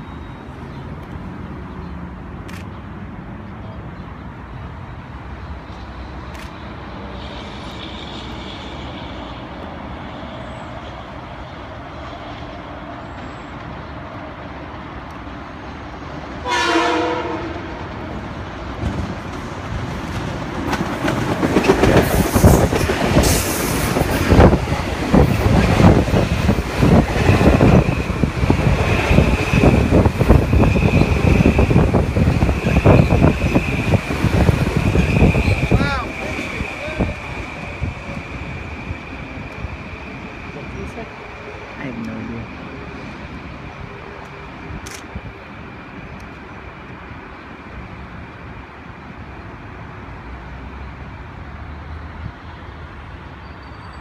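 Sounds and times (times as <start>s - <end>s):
train horn blast: 16.4s - 17.9s
train wheels clattering: 18.8s - 31.6s.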